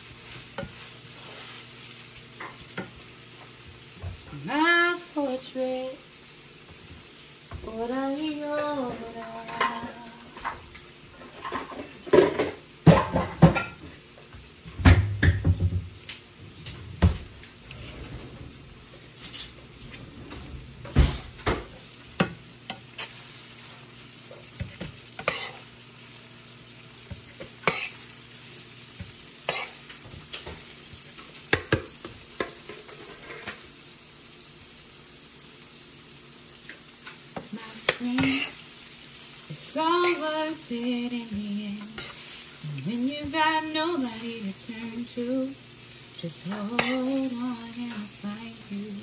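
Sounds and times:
food sizzling: 0.0s - 49.0s
spoons scraping a pan: 24.6s - 25.7s, 27.4s - 28.0s, 37.9s - 38.6s, 41.8s - 42.5s.

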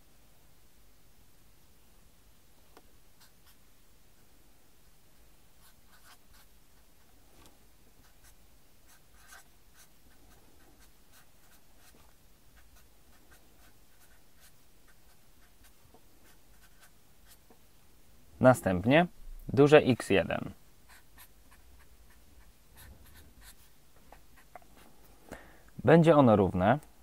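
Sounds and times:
marker writing on paper: 5.6s - 6.5s, 8.0s - 9.9s, 10.7s - 17.5s, 20.9s - 24.6s.

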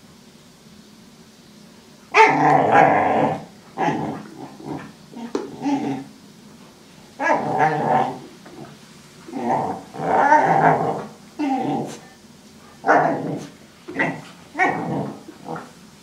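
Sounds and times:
puppy play-growling: 2.1s - 6.2s, 7.1s - 15.9s.

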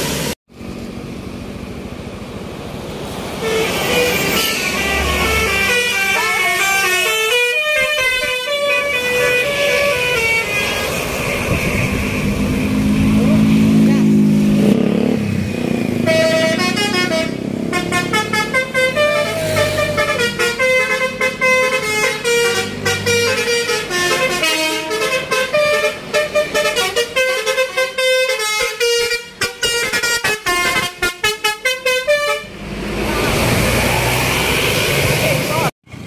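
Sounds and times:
bus musical horn melody: 3.4s - 12.5s, 15.9s - 32.6s.

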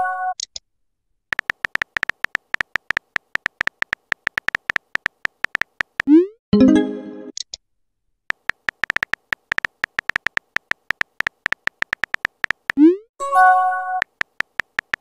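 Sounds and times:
keyboard tap clicks: 1.3s - 6.1s, 8.3s - 12.8s, 14.0s - 15.0s.

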